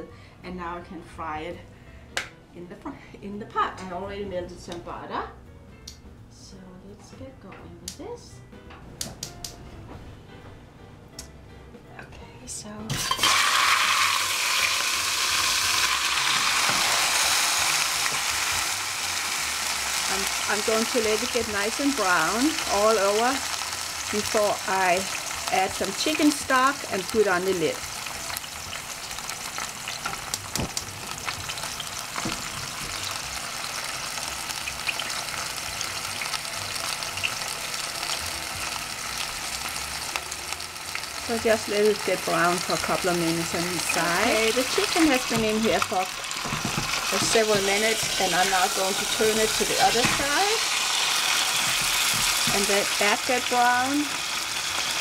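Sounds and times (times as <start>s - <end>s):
chicken sizzling in butter: 12.9s - 55.0s.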